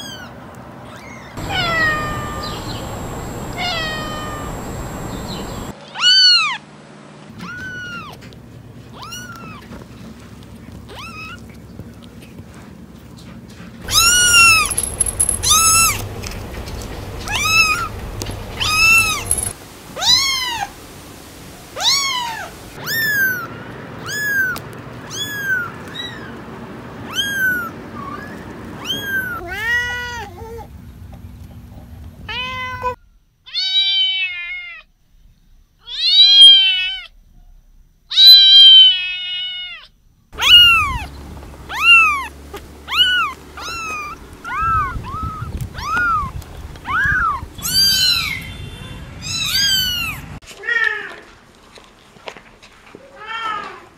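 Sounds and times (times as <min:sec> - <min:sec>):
kittens meowing: 0:00.9 - 0:06.6, 0:07.4 - 0:08.2, 0:13.9 - 0:20.7, 0:21.8 - 0:26.4, 0:27.0 - 0:30.3, 0:38.1 - 0:41.1, 0:41.7 - 0:42.3, 0:42.9 - 0:48.5, 0:49.2 - 0:50.8.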